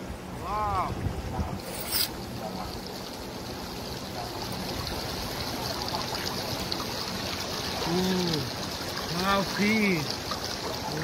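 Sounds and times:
river water trickling: 0:00.0 - 0:11.0
man exclaiming: 0:00.4 - 0:01.0.

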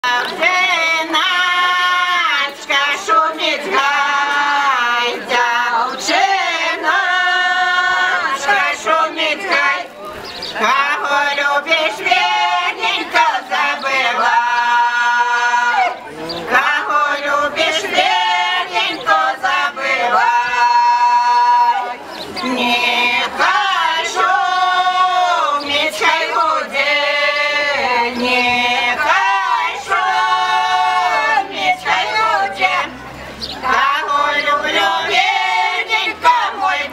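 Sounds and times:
women's choir singing unaccompanied: 0:00.0 - 0:36.9.

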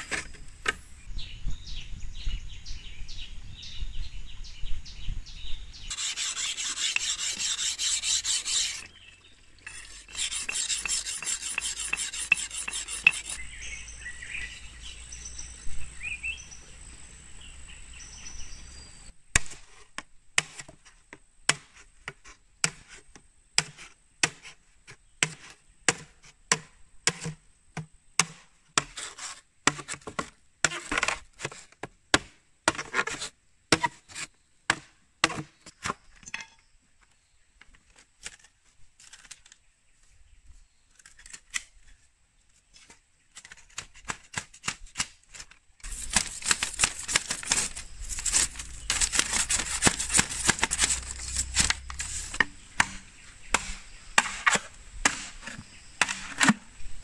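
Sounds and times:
blade chopping bamboo: 0:05.9 - 0:08.9, 0:09.7 - 0:13.4, 0:23.6 - 0:24.5, 0:25.2 - 0:34.0, 0:34.7 - 0:36.0, 0:43.4 - 0:56.6
hand saw rasping through bamboo: 0:05.9 - 0:08.9, 0:09.6 - 0:13.5, 0:43.7 - 0:53.0
bird chirps: 0:08.3 - 0:19.1.

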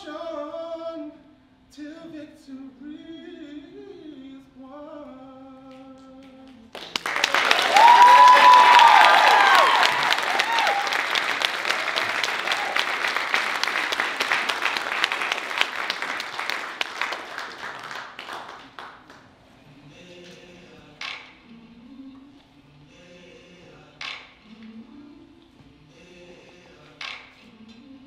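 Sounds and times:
audience applauding: 0:06.7 - 0:19.2.

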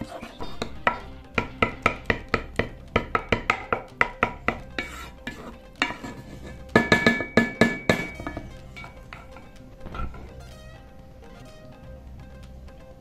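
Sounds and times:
plucked-string background music: 0:00.0 - 0:13.0
spoon scraping a pot: 0:03.4 - 0:09.5.

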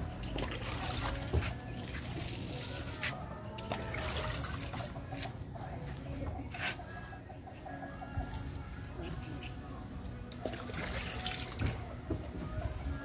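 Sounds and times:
running water: 0:00.0 - 0:05.3, 0:10.3 - 0:12.0.

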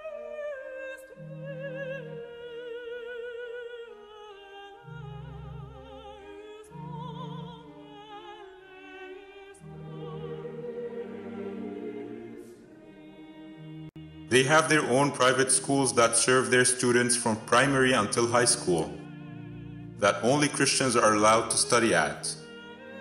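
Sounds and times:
classical singing voice with vibrato: 0:00.0 - 0:23.0
low sustained accompaniment: 0:04.8 - 0:23.0.

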